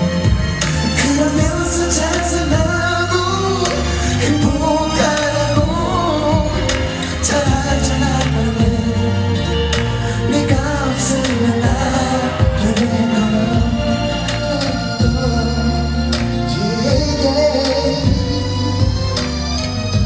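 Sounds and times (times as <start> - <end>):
bass and drum backing: 0.0 - 20.0
man singing pop song: 0.0 - 20.0.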